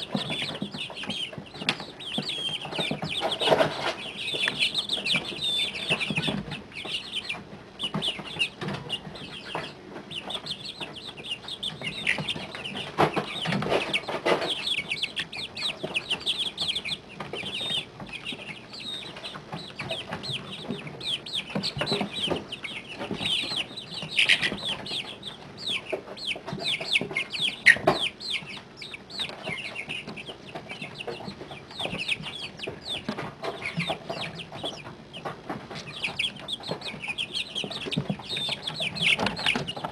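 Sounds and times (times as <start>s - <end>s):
chicks peeping: 0.0s - 39.9s.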